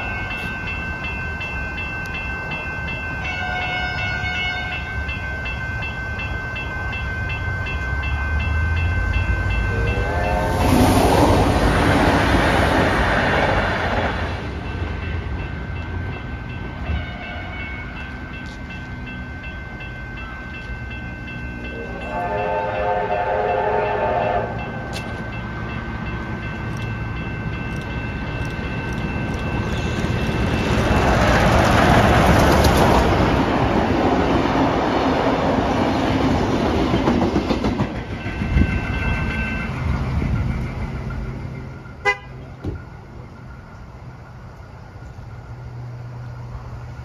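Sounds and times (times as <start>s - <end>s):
level crossing bells ringing: 0.0s - 10.7s, 14.6s - 31.0s
steam train passing: 0.0s - 47.0s
steam locomotive whistle: 3.3s - 4.8s, 9.5s - 11.2s, 21.7s - 24.9s, 42.0s - 42.5s.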